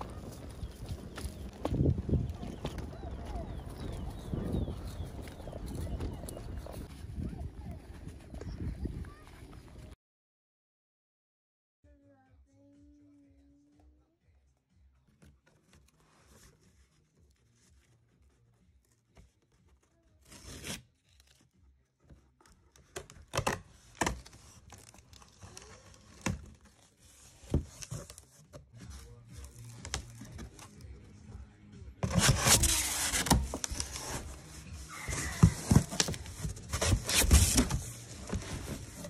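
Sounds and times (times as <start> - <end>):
packing tape ripping off cardboard: 20.2 - 21.5, 32.0 - 34.4, 35.1 - 39.0.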